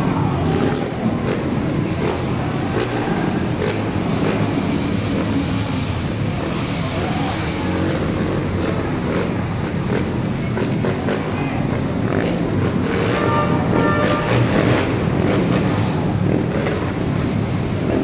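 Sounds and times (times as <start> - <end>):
faint voices: 0.0 - 12.6.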